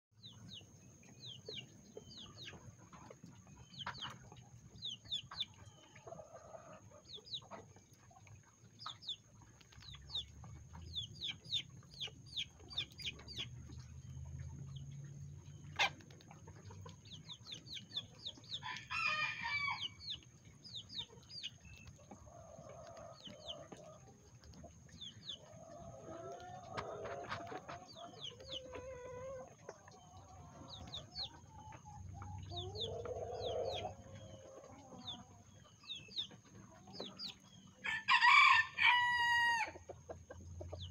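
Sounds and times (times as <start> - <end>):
chickens clucking and chirping: 0.2 - 40.9
rooster crowing: 18.6 - 19.9, 37.8 - 39.8.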